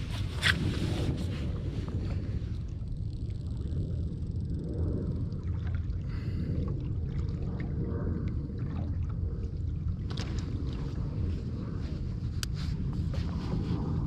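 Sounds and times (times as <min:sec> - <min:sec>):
steady low rumble: 0:00.0 - 0:14.0
water lapping against hull: 0:00.0 - 0:14.0
wind buffeting microphone: 0:00.0 - 0:14.0.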